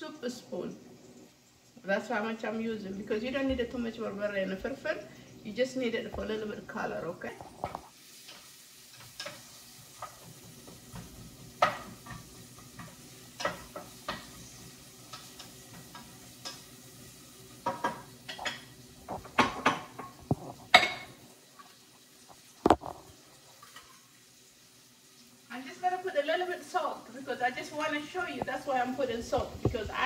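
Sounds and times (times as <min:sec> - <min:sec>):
onions sizzling: 0:00.0 - 0:30.0
spoon knocking on pot: 0:10.0 - 0:14.4, 0:17.6 - 0:21.1.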